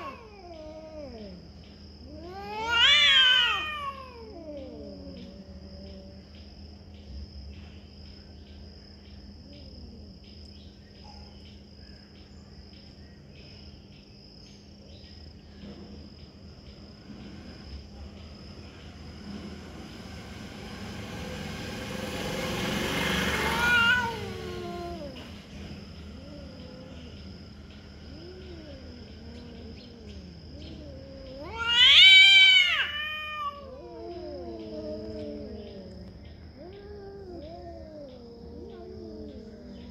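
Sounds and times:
cat yowling: 0.0s - 6.2s, 23.1s - 27.4s, 28.0s - 39.9s
insects chirping: 0.0s - 39.9s.

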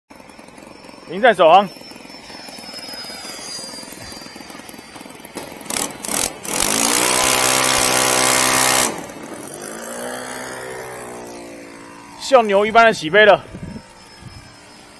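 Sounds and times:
model airplane engine revving: 0.1s - 14.9s.

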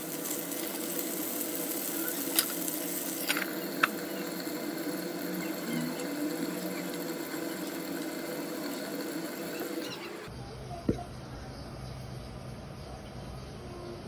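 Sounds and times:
burger patty sizzling: 0.0s - 10.3s
induction cooktop hum: 0.0s - 14.0s.

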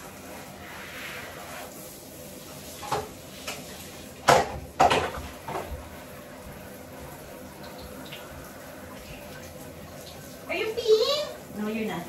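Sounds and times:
objects knocking on metal soap dish: 4.3s - 5.8s.

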